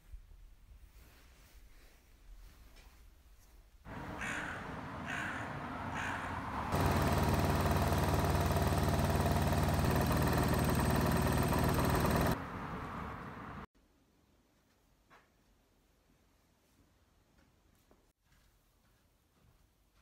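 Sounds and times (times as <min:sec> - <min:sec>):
crow cawing: 0:03.9 - 0:06.8.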